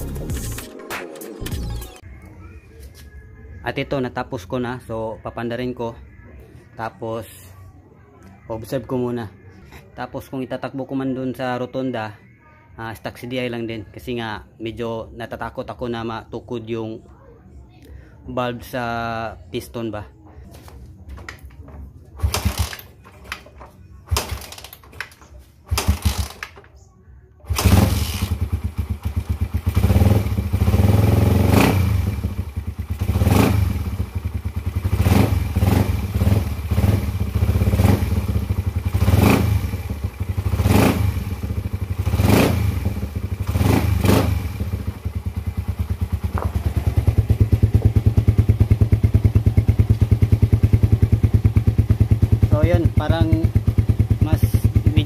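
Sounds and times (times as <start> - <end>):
motorcycle engine revving: 22.2 - 22.9, 25.7 - 26.4, 27.4 - 55.0.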